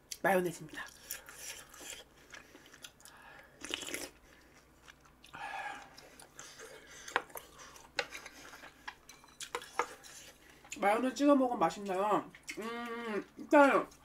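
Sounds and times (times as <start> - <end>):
person chewing and crunching food: 0.1 - 10.8.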